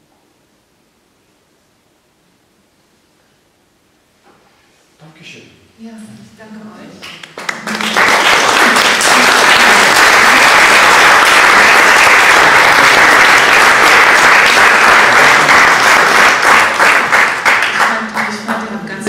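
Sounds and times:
audience applause: 0:07.2 - 0:19.0.

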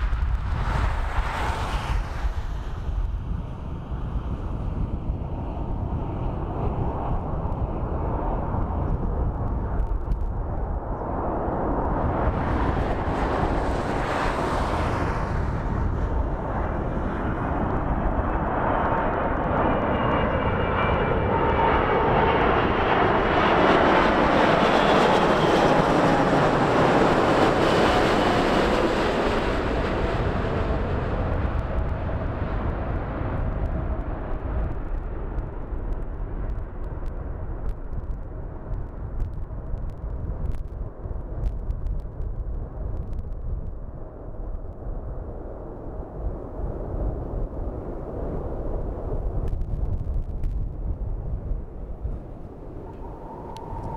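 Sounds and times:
jet engine roar: 0:00.0 - 0:39.0, 0:45.2 - 0:53.9
high fan whine: 0:49.4 - 0:53.9.

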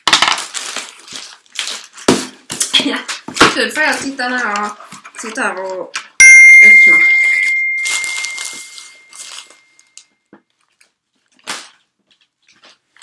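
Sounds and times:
cardboard box and plastic rustling: 0:00.0 - 0:05.9, 0:07.8 - 0:13.0
text message alert chime: 0:06.2 - 0:09.3.

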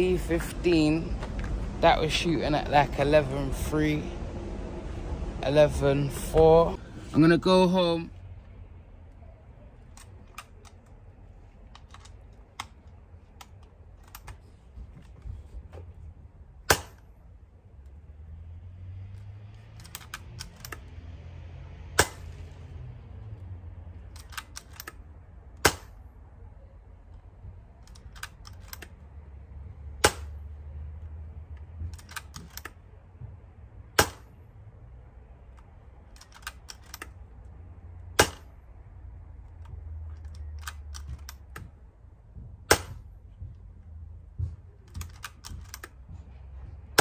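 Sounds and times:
small metallic clicks: 0:09.8 - 0:11.0, 0:11.6 - 0:14.4, 0:19.1 - 0:21.0, 0:23.9 - 0:26.0, 0:27.1 - 0:29.0, 0:31.5 - 0:32.8, 0:35.5 - 0:37.4, 0:39.4 - 0:41.7, 0:44.9 - 0:46.0
air rifle shots: 0:25.6 - 0:26.0, 0:38.2 - 0:38.5.

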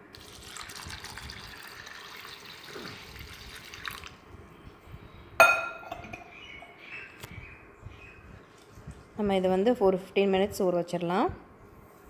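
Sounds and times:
water pouring into steel bowl: 0:00.1 - 0:04.1.

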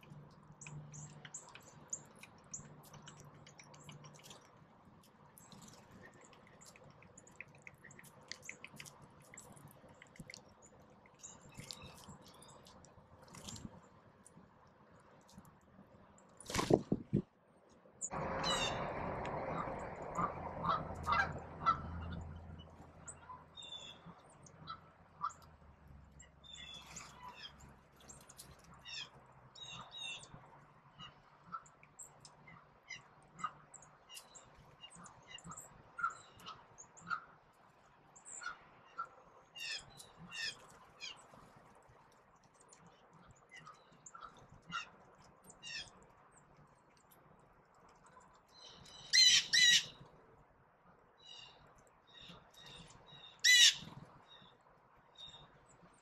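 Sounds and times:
songbirds chirping: 0:00.0 - 0:56.0
rushing noise with low hum: 0:18.0 - 0:23.3.

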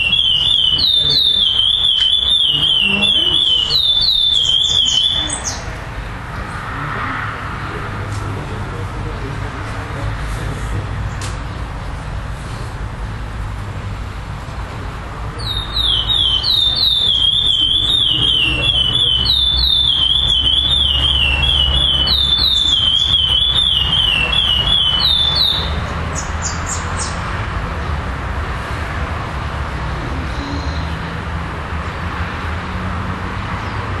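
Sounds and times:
finch singing whistled notes: 0:00.0 - 0:05.7, 0:15.4 - 0:27.2.

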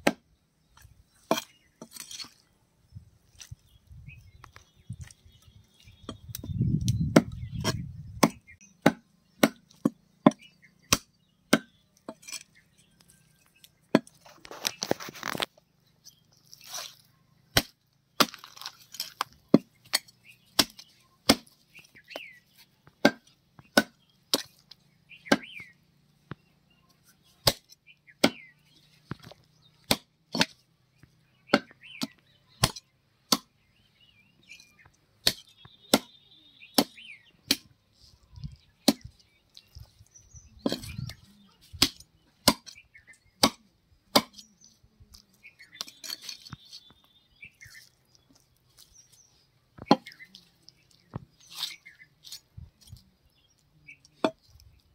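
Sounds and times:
cleaver chopping on wooden block: 0:06.1 - 0:12.4, 0:17.5 - 0:22.3, 0:23.0 - 0:24.5, 0:25.2 - 0:25.6, 0:27.4 - 0:28.5, 0:29.1 - 0:30.6, 0:31.5 - 0:33.5, 0:35.2 - 0:36.2, 0:36.8 - 0:37.7, 0:38.8 - 0:39.1, 0:41.7 - 0:42.8, 0:43.4 - 0:44.5, 0:49.8 - 0:50.2, 0:54.2 - 0:54.5.

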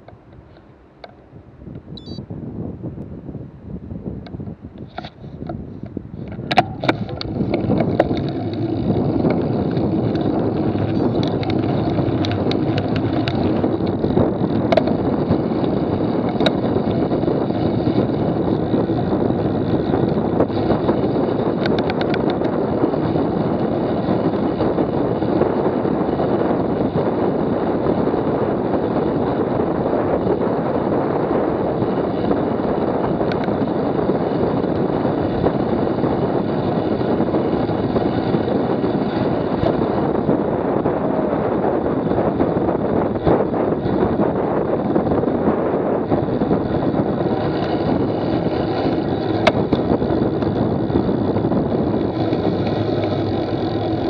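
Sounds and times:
road noise: 0:00.0 - 0:54.0
wind rush on microphone: 0:00.0 - 0:54.0
faint clicks: 0:04.2 - 0:15.0, 0:21.6 - 0:22.6.

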